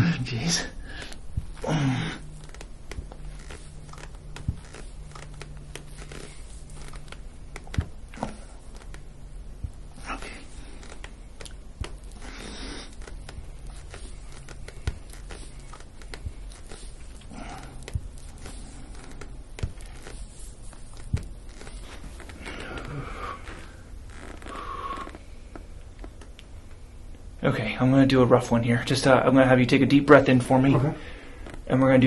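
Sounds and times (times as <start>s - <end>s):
low room hum: 0.0s - 32.0s
skin and clothing rubbing: 0.9s - 26.4s.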